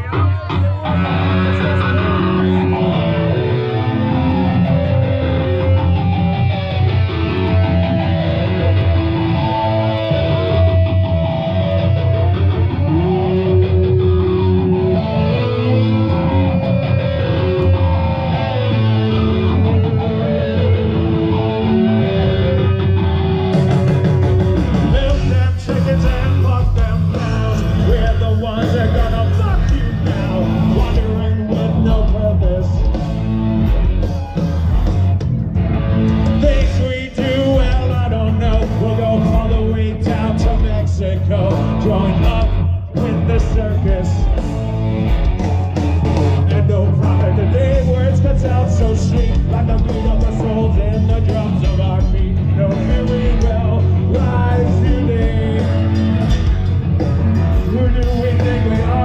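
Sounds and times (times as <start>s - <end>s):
lead singer singing: 0.0s - 5.8s, 24.6s - 33.2s, 36.2s - 44.9s, 46.0s - 56.5s, 57.3s - 59.0s
live rock band playing: 0.0s - 59.0s.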